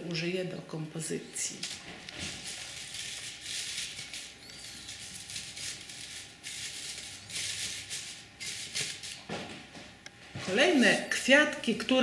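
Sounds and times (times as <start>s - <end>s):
crepe paper rustling: 1.6s - 9.3s.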